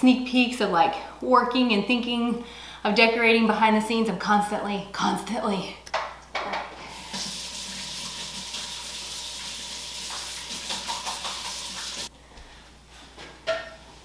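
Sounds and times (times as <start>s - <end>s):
faucet running water: 6.9s - 12.1s.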